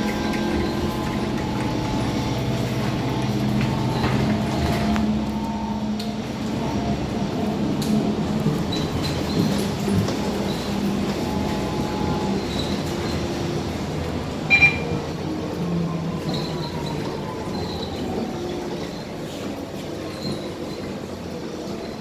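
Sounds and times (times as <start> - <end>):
bus engine hum: 0.0 - 22.0
double electronic beep: 14.5 - 15.0.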